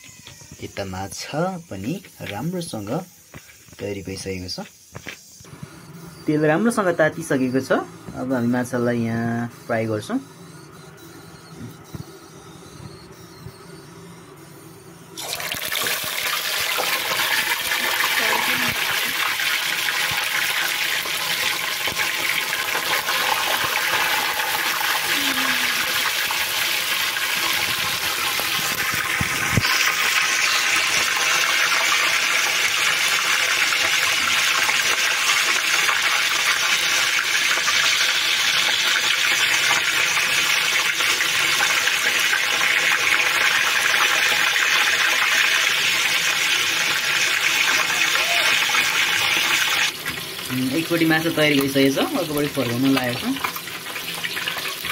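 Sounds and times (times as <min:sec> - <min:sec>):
fish deep-frying in hot oil: 0:15.2 - 0:54.9.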